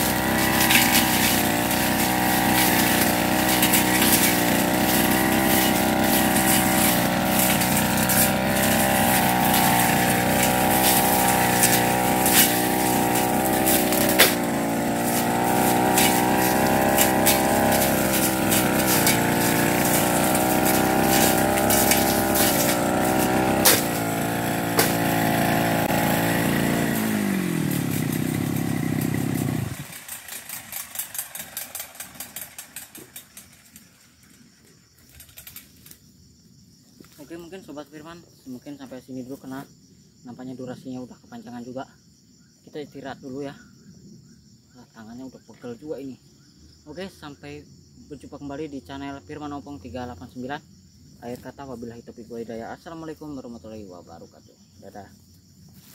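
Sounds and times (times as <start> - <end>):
brush cutter engine running: 0.0 - 34.0.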